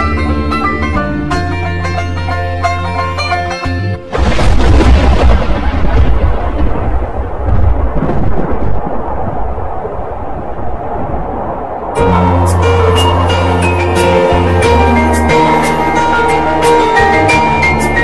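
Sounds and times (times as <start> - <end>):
thunder crack and rumble: 4.1 - 12.4.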